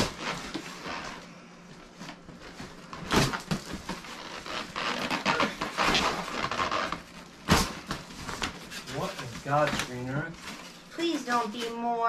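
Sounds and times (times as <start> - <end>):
cardboard ripping: 0.0 - 1.2, 2.6 - 10.7
cardboard scraping and rustling: 0.0 - 11.9.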